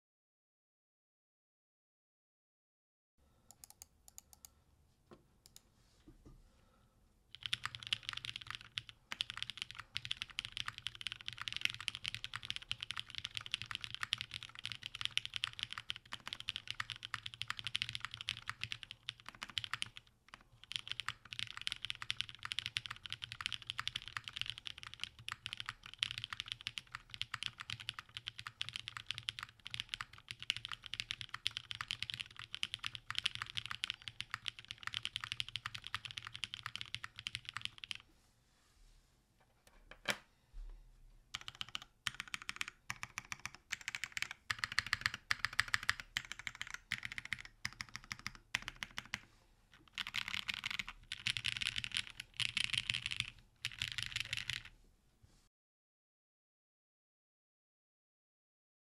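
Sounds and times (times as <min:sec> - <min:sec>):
mechanical keyboard typing: 0:07.3 - 0:38.0, 0:41.3 - 0:54.7.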